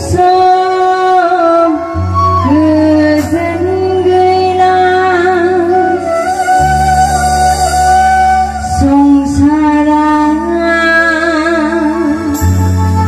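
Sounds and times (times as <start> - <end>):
woman singing: 0.0 - 12.7
side-blown flute: 1.0 - 10.5.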